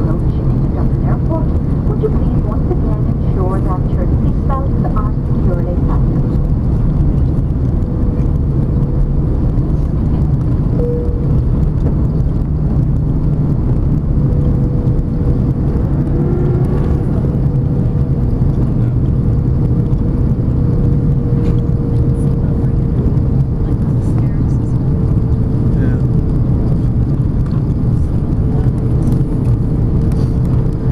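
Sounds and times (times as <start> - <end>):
low rumble of engines and airflow: 0.0 - 30.9
thin steady whine: 0.0 - 30.9.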